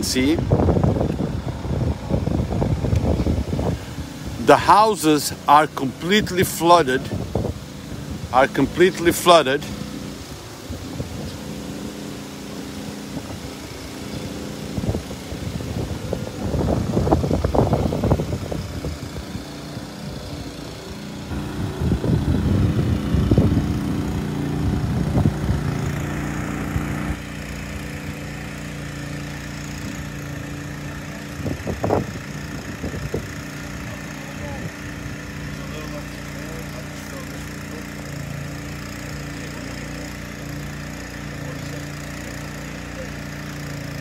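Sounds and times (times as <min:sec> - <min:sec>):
engine humming: 0:00.0 - 0:44.0
low rumbling noise: 0:14.2 - 0:27.3.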